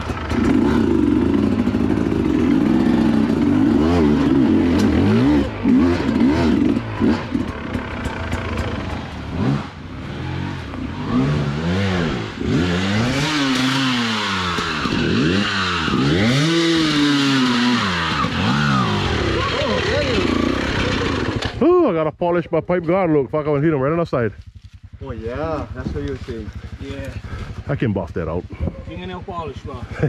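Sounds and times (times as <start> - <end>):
dirt bike engine revving: 0.0 - 21.6.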